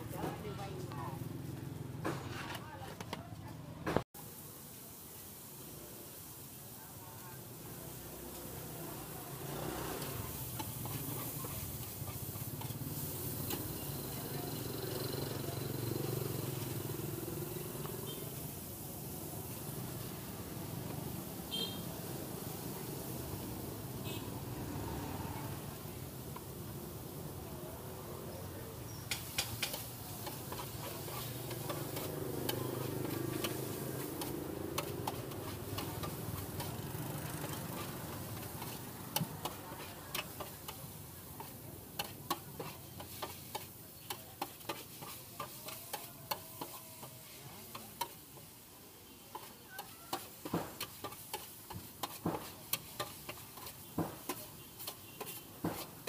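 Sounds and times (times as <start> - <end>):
low sizzle: 4.2 - 56.0
metal spatula scraping wok: 9.3 - 18.8, 28.9 - 56.0.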